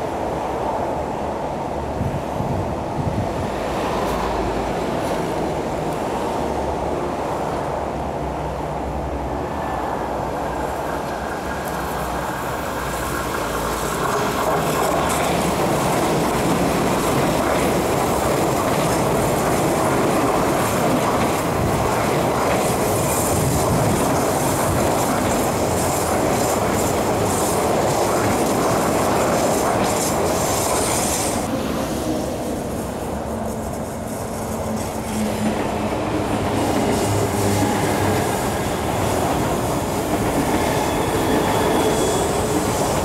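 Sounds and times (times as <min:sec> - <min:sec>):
train wheels rumbling on rails: 0:00.0 - 0:43.0
rail clicks: 0:10.5 - 0:43.0
high-pitched wheel squeal: 0:40.6 - 0:42.9.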